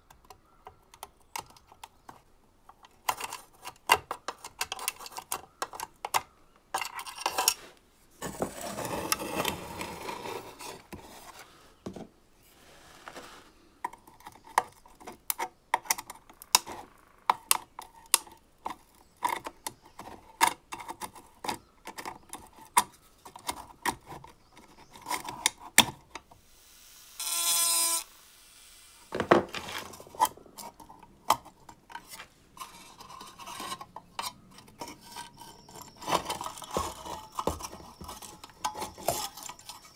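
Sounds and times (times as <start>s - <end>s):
screwdriver clicks and scrapes: 2.8s - 7.6s, 29.7s - 39.9s
metal parts handled: 29.1s - 39.9s.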